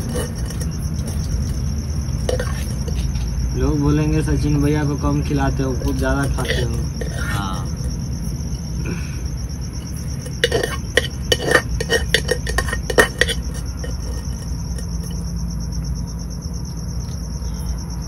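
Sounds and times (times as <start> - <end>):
metal spoon scraping and clinking: 0.0 - 3.3, 5.7 - 8.7, 9.8 - 15.3
crickets chirping: 0.0 - 18.0.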